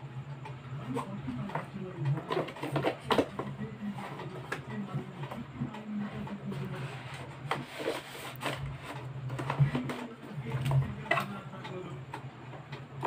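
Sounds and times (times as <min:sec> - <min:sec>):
steady low hum: 0:00.0 - 0:13.0
cardboard box rustling and scraping: 0:06.7 - 0:09.0.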